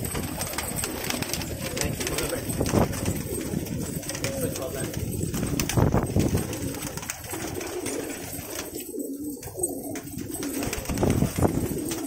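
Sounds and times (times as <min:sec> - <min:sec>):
pigeons cooing: 0:00.0 - 0:12.0
wings fluttering: 0:00.0 - 0:12.0.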